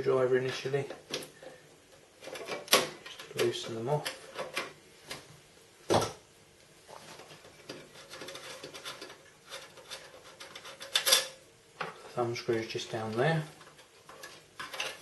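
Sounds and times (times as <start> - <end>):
light metal scraping: 6.9 - 11.3.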